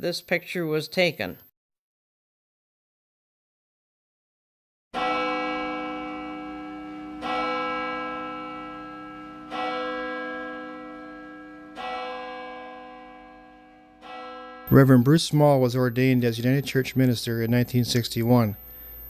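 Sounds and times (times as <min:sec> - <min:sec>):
church bell tolling: 0:05.0 - 0:18.6.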